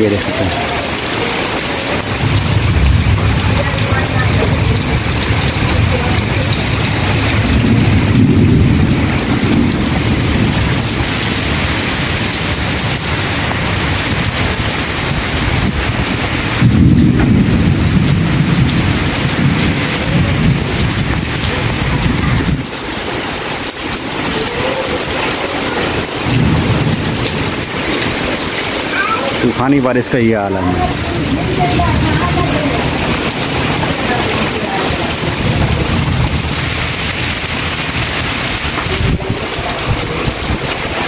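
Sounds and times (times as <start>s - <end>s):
heavy rain pouring: 0.0s - 41.0s
deep rumbles: 1.7s - 22.8s, 30.6s - 41.0s.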